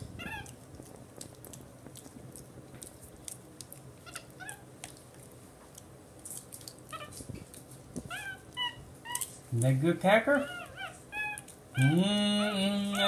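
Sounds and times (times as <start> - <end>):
monkey chirping: 10.4 - 13.0.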